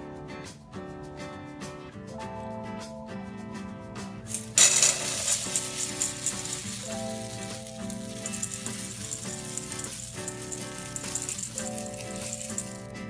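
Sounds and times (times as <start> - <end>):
background music: 0.0 - 13.0
oats pouring into metal bowl: 4.3 - 13.0.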